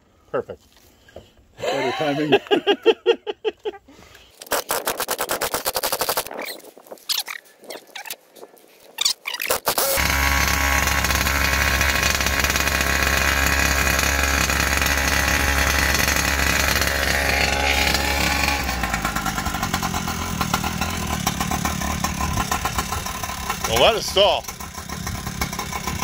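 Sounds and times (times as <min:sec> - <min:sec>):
starter clicks: 0:04.3 - 0:07.4, 0:09.0 - 0:19.5
small gasoline engine idling: 0:09.8 - 0:26.0.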